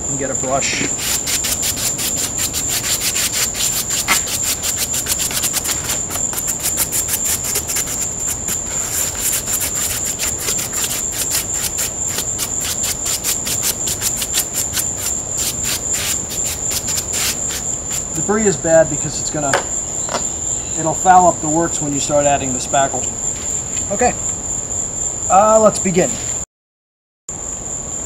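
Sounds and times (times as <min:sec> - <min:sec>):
crickets chirping: 0:00.0 - 0:26.4, 0:27.3 - 0:28.0
brush sweeping over styrofoam: 0:00.6 - 0:18.3.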